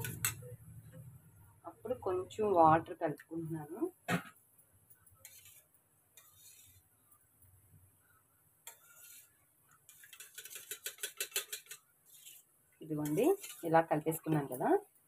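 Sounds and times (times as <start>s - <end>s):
spoon scraping steel bowl: 0.0s - 0.5s, 5.1s - 6.9s, 8.6s - 14.6s
spoon clinking against bowl: 10.2s - 11.8s.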